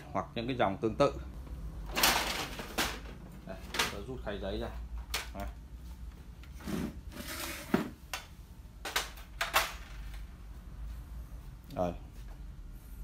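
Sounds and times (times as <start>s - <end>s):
paper tray sliding scrape: 6.5s - 7.9s.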